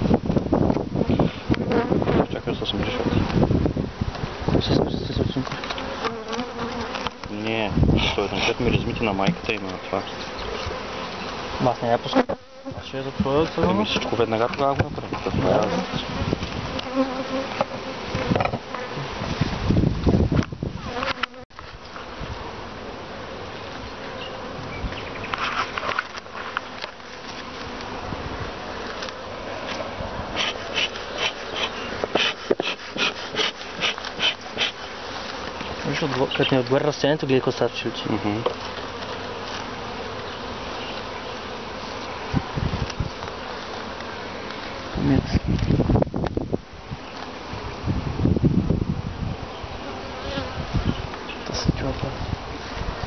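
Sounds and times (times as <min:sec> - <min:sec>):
low knocks of hive frame: 0:00.0 - 0:22.5
bees buzzing: 0:00.0 - 0:53.0
knocks on hive: 0:09.2 - 0:09.6, 0:17.6 - 0:18.8
rustling: 0:23.6 - 0:37.7, 0:38.4 - 0:45.9.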